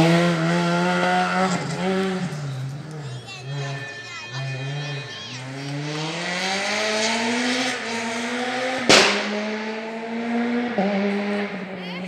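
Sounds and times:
rally car engine revving: 0.0 - 12.0
loud sharp bang: 8.8 - 9.5.

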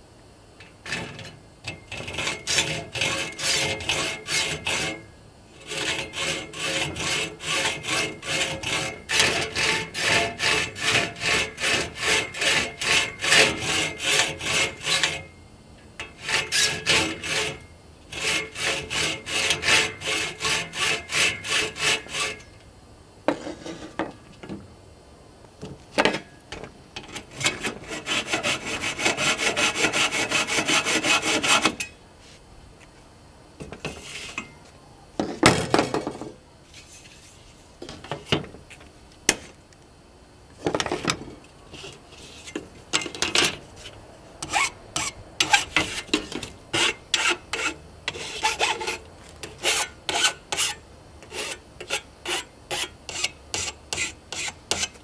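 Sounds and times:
hacksaw cutting metal: 0.8 - 15.3, 16.0 - 22.5, 27.0 - 31.9, 44.4 - 55.0.

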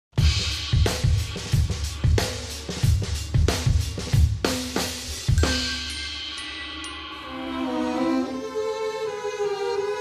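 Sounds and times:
driving drum beat: 0.1 - 8.4
cymbal crash: 4.8 - 8.5.

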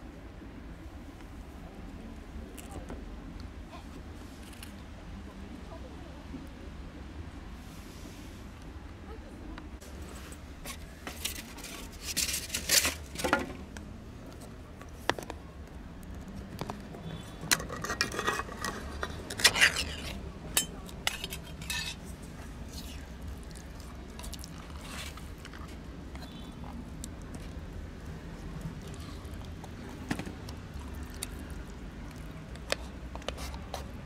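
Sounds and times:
metal tin clinking and scraping: 10.7 - 13.5, 17.2 - 22.2.

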